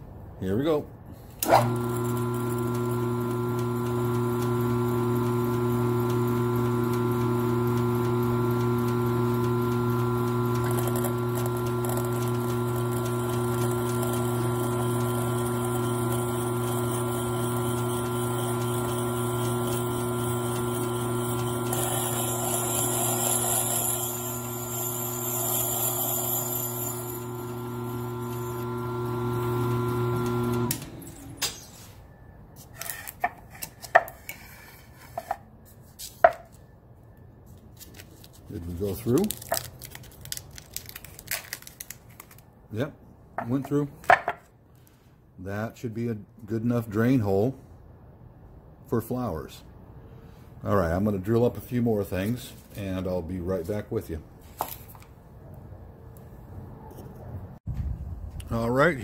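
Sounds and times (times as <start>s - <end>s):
electric motor humming: 1.4s - 31.4s
drill bit grinding ceramic: 1.5s - 30.8s.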